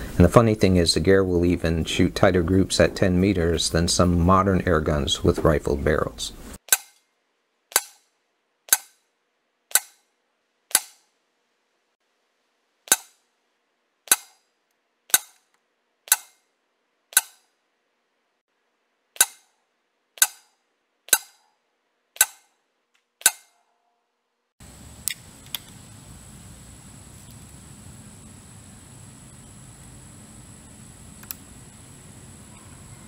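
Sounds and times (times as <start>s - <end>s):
airgun firing clicks: 14.1s - 14.4s, 16.1s - 16.4s, 22.2s - 22.4s.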